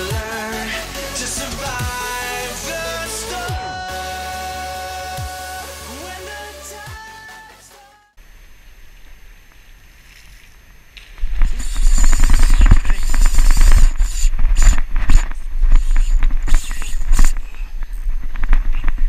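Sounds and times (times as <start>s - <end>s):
fishing reel clicking rapidly: 11.5s - 17.4s.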